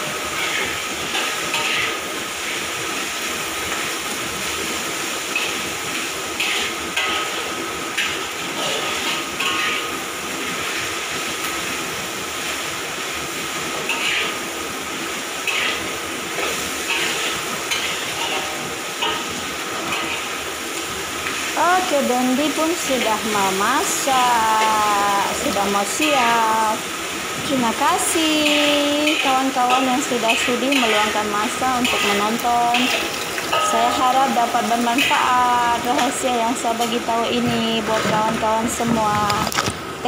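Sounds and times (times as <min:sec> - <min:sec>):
frying hiss: 0:00.0 - 0:40.0
metal spatula scraping a wok: 0:00.1 - 0:02.7, 0:05.3 - 0:10.8, 0:13.7 - 0:14.4, 0:15.4 - 0:20.4, 0:28.4 - 0:35.3.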